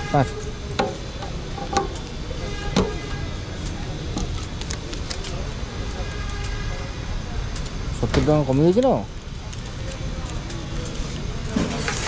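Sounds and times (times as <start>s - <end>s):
steady low rumble: 9.0s - 12.0s.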